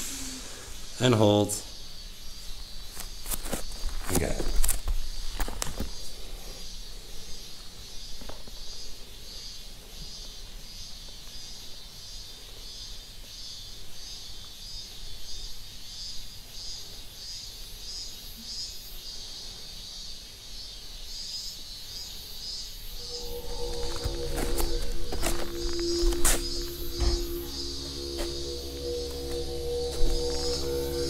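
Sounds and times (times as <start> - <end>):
insects chirping: 22.9 - 31.0
faint low hum: 23.0 - 31.0.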